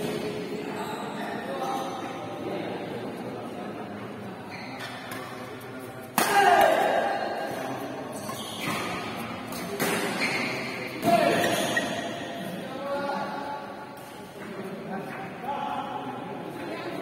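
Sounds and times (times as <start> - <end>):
racket hitting shuttlecock: 6.1 - 7.1, 8.6 - 12.0.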